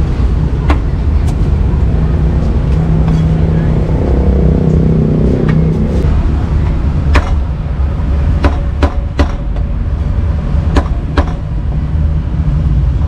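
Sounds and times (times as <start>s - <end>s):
street traffic rumble: 0.0s - 13.0s
cleaver chopping on wooden block: 7.1s - 7.4s, 8.4s - 9.6s, 10.7s - 11.4s.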